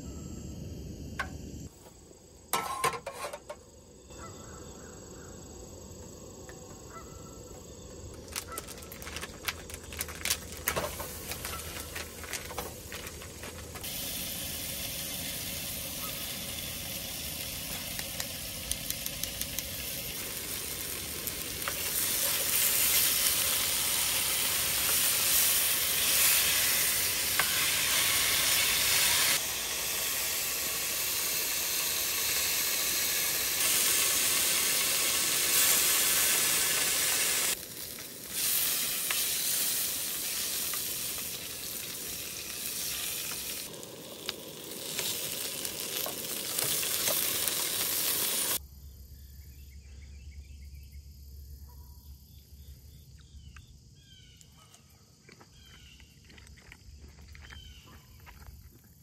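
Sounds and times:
faint insect chirping: 0.0 - 59.0
hot dogs sizzling: 6.8 - 48.6.

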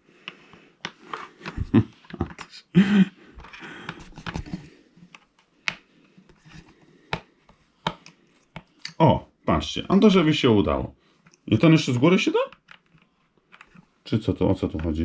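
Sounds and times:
light rustling of handling: 3.4 - 8.8
plastic toy parts clicking: 12.5 - 13.8.

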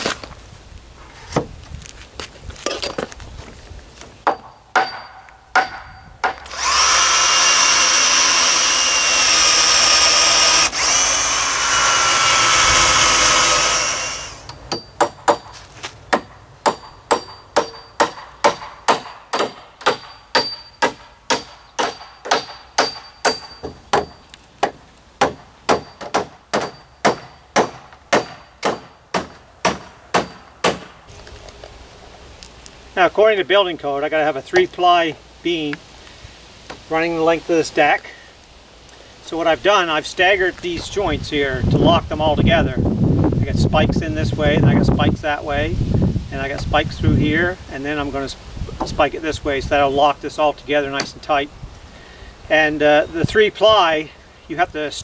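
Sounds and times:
hammer striking nails: 4.3 - 11.0, 16.1 - 31.0
power drill running: 6.4 - 14.6.

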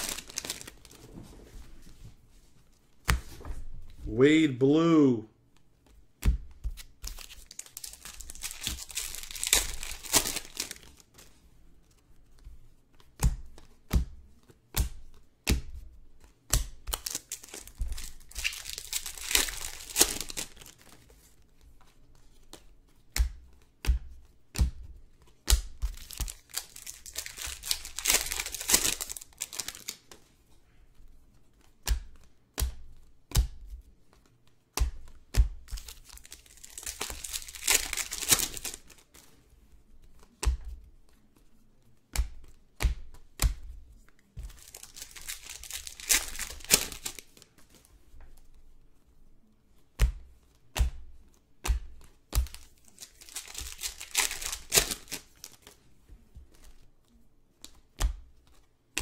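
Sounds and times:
card wrappers tearing and crinkling: 0.0 - 1.1, 7.1 - 11.1, 16.9 - 21.0, 25.9 - 30.0, 35.7 - 39.2, 44.5 - 47.5, 52.5 - 55.8.

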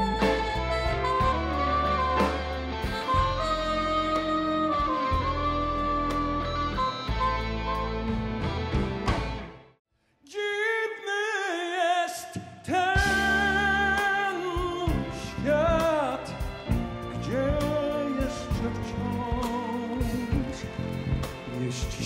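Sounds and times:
live band with bass and drums: 0.0 - 9.6, 13.0 - 22.0.

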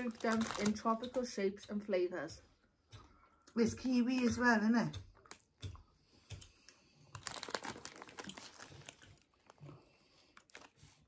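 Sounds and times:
plastic packet crinkling: 0.0 - 1.1, 7.1 - 11.0.

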